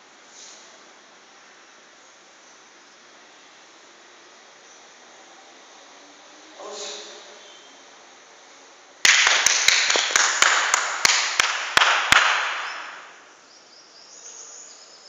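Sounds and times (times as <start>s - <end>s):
people clapping: 9.0s - 13.2s.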